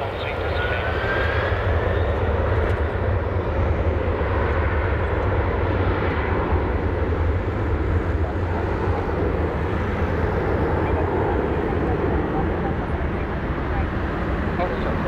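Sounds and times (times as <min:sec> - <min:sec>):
jet engines at takeoff power: 0:00.0 - 0:15.0.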